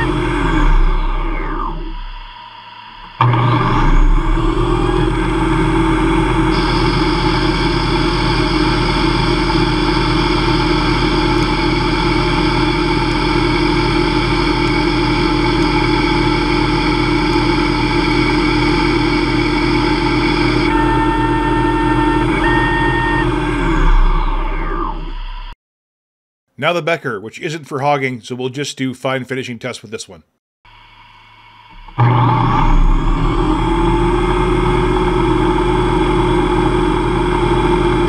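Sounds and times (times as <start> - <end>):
higher whine: 0.0 - 25.6, 30.7 - 38.0
lathe spindle whine: 0.0 - 25.6, 30.7 - 38.0.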